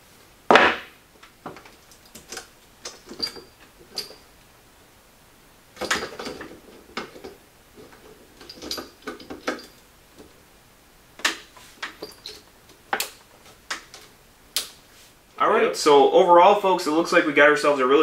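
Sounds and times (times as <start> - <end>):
metal clatter: 5.8 - 9.8.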